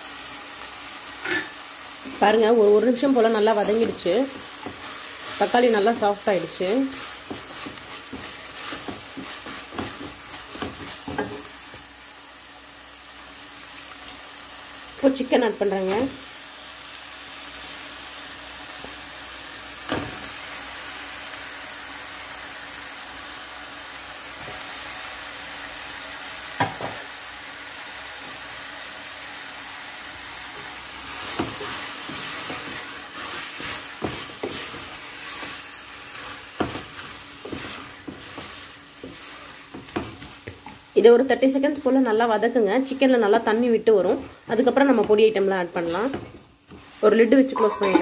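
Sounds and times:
masala sizzling in a pan: 0:00.0 - 0:48.0
spatula scraping through food: 0:03.7 - 0:11.5, 0:30.6 - 0:40.8.

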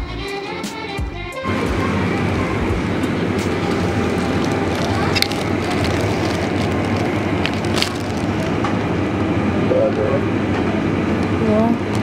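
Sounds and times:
supermarket din: 0:01.4 - 0:09.2.

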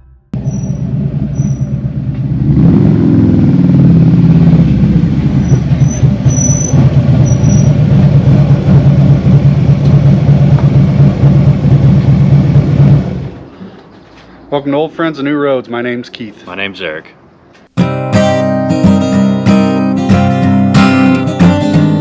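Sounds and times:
motorcycle engine revving and idling: 0:00.3 - 0:13.6.

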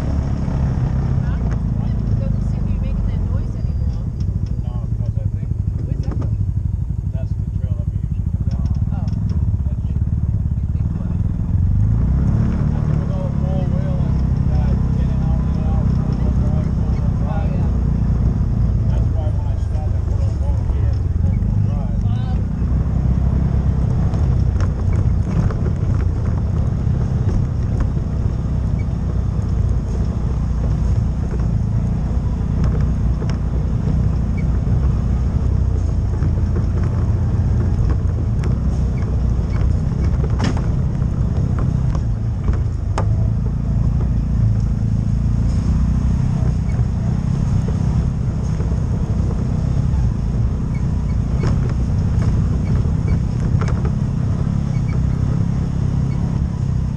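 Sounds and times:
off-road vehicle engine droning: 0:00.0 - 0:56.9
sharp knocks from rough ground: 0:23.8 - 0:31.7, 0:32.4 - 0:44.8, 0:47.6 - 0:55.5.

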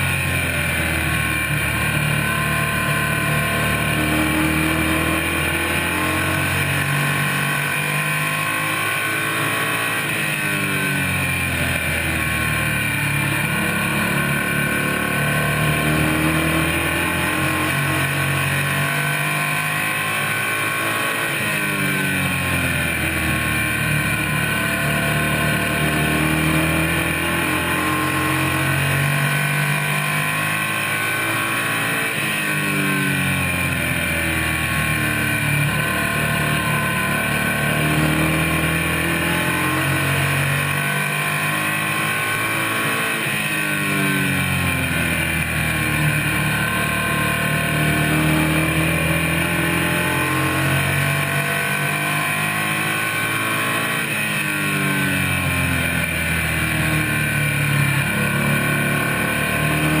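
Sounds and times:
race car engine revving: 0:00.0 - 1:00.0.

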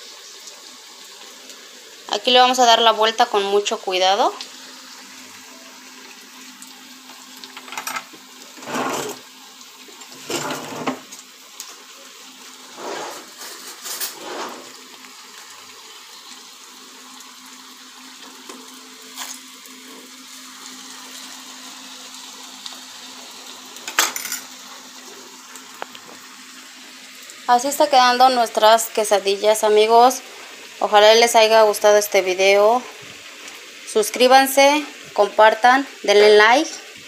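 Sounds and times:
food deep-frying in hot oil: 0:00.0 - 0:37.0.

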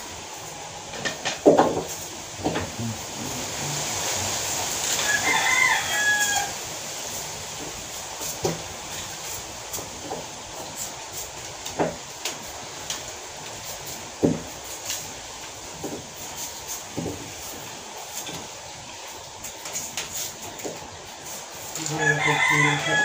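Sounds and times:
rooster crowing: 0:04.8 - 0:06.6, 0:21.8 - 0:23.0.

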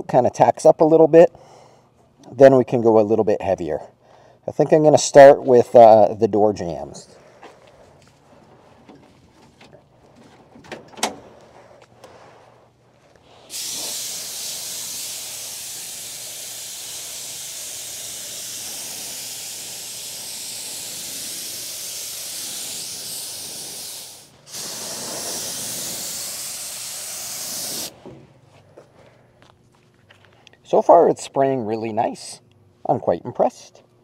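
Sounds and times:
paint spray gun hissing: 0:13.3 - 0:28.0.

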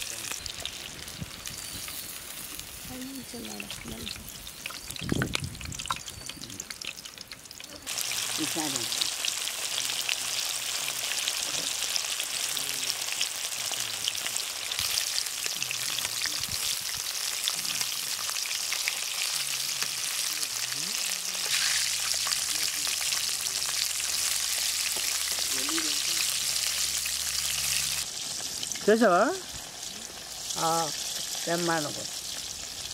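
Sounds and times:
chicken deep-frying in oil: 0:00.0 - 0:32.9.

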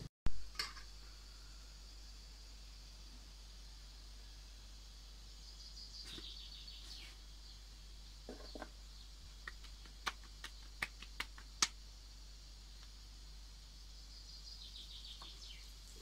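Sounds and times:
hands patting bread dough: 0:09.3 - 0:11.8.

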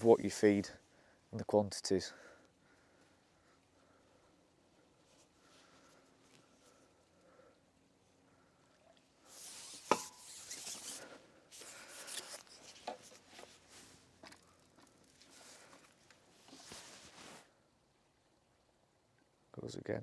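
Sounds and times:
fishing pole rustling and scraping: 0:05.0 - 0:06.6, 0:09.2 - 0:17.5.

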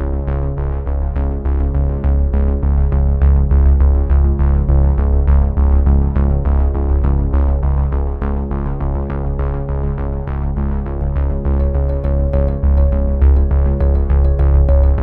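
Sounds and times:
heavy bass: 0:11.2 - 0:15.0
electronic synthesizer music: 0:11.6 - 0:15.0.

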